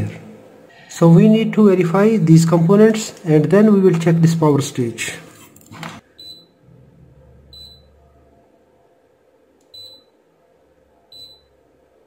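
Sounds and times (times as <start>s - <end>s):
short high multimeter beeps: 6.2s - 6.5s, 7.6s - 7.9s, 9.7s - 10.1s, 11.1s - 11.5s.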